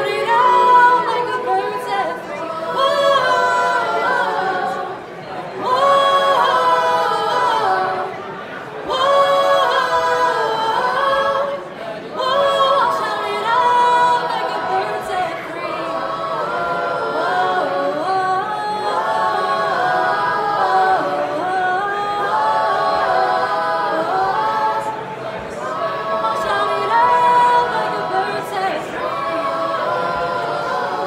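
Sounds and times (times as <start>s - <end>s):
girls' choir singing a cappella: 0.0s - 31.0s.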